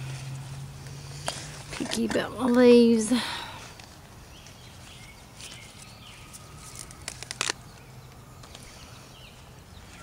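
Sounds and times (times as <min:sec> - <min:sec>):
low steady hum: 0:00.0 - 0:10.0
leaves rustling and snapping: 0:05.4 - 0:08.7.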